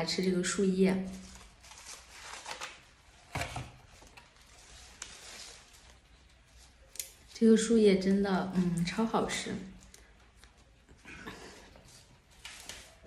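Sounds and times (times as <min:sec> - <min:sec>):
leaves rustling: 0:04.3 - 0:07.0.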